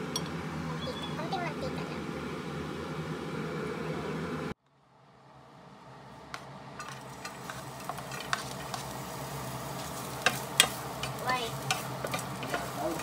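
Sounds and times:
garlic sizzling in hot oil: 6.8 - 13.0.

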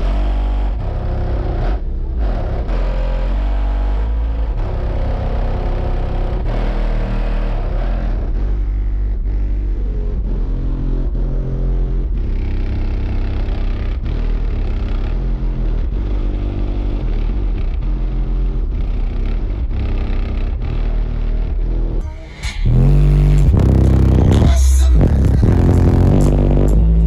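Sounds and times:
deep bass music from car subwoofers: 0.0 - 27.0.

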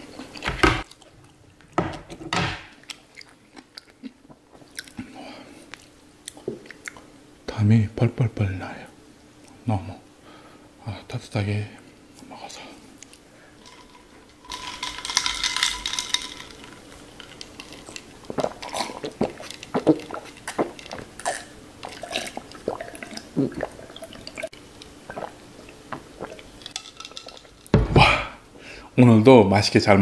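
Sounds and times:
ice clattering in glass: 13.6 - 18.0, 26.6 - 27.7
gulping swallows: 18.3 - 26.5.

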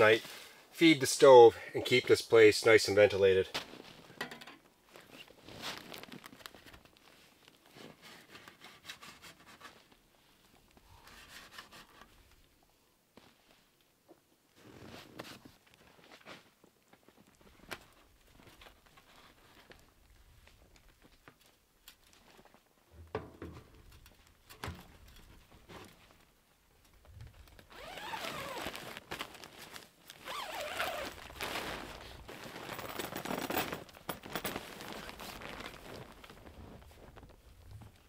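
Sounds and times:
tent fabric rustling: 4.9 - 10.5, 14.6 - 21.2, 27.3 - 38.0.

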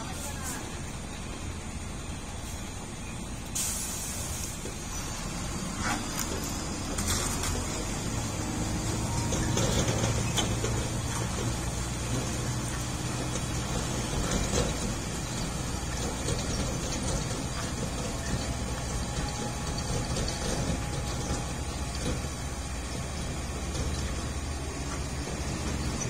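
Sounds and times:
truck diesel engine running: 0.0 - 26.0
sharp clicks and knocks: 8.7 - 26.0.

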